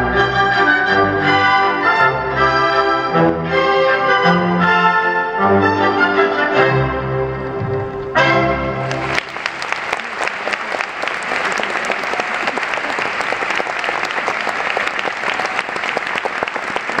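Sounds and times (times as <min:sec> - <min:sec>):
audience applause: 0:08.8 - 0:17.0.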